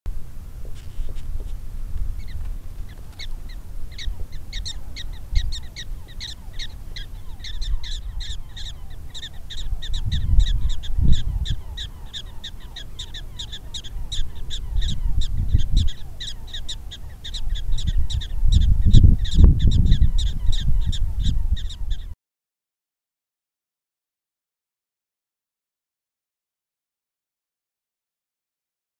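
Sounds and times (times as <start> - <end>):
wind on microphone: 0.1 - 22.2
prairie dog alarm barks: 2.2 - 22.1.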